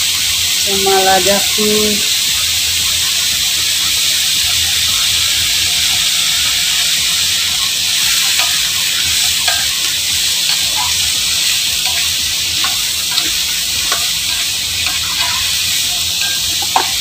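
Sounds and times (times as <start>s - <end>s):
vegetables sizzling in oil: 0.0s - 17.0s
spatula scraping and tapping pan: 6.4s - 17.0s.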